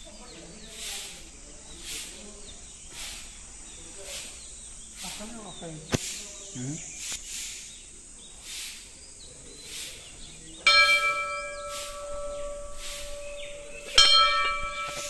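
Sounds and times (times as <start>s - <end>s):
large temple bell ringing: 10.6s - 15.0s.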